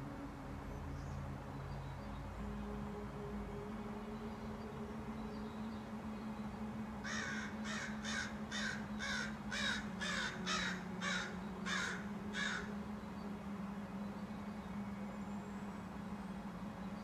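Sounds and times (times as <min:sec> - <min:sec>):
steady low hum: 0:00.0 - 0:17.0
crow cawing: 0:07.1 - 0:12.7.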